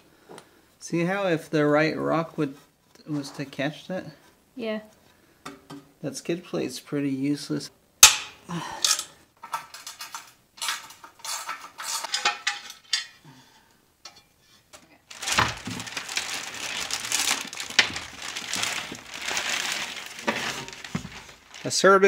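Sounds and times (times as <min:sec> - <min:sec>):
metal tools clinking on metal: 0:08.8 - 0:13.2
plastic bag rustling: 0:15.0 - 0:22.0.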